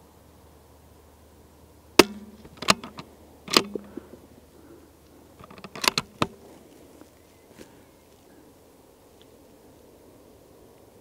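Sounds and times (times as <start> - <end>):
rifle shots cracking: 2.0 - 4.0.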